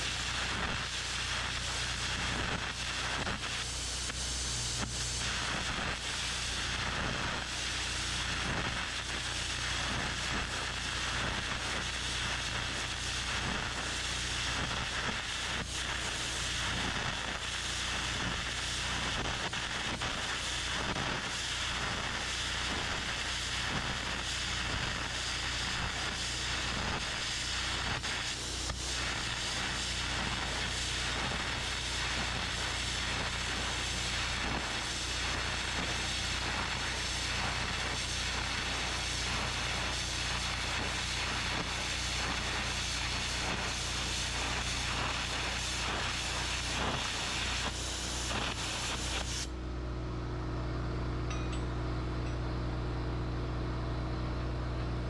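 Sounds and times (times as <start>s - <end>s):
electric arc hissing: 0.0s - 49.6s
low steady hum: 49.5s - 55.0s.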